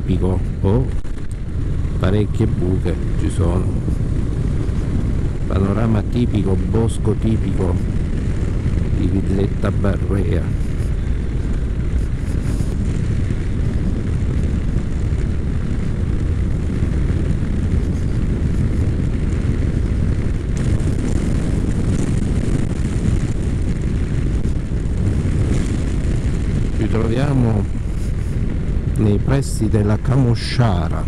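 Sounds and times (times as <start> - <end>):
wind rumble on microphone: 0.0 - 31.0
motorcycle engine cruising: 7.6 - 29.0.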